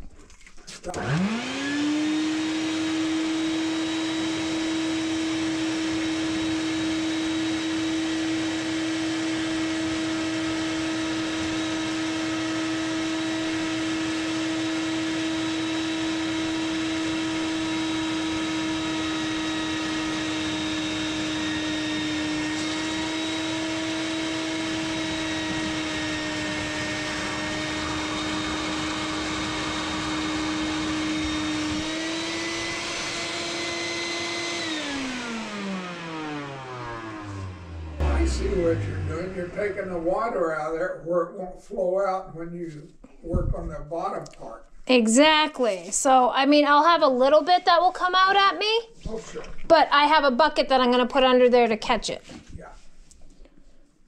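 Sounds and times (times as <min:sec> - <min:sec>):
shop vacuum whining: 0:00.7 - 0:41.0.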